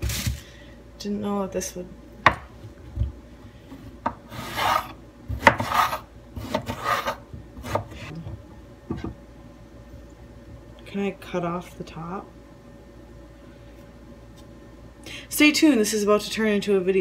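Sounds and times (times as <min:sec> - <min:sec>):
knife rasping through eggplant: 0:04.2 - 0:07.9.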